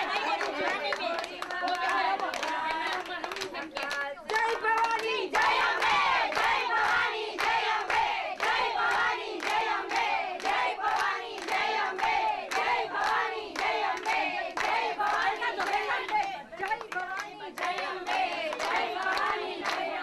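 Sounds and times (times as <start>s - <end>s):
hands clapping in time: 0.0s - 19.9s
women singing together: 0.0s - 20.0s.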